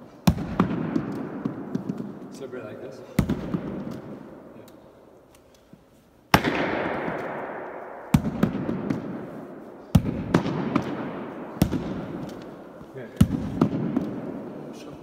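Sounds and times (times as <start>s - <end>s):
baseball hitting wall and floor: 0.0s - 4.8s, 6.3s - 15.0s
ball bouncing on floor: 0.6s - 2.3s.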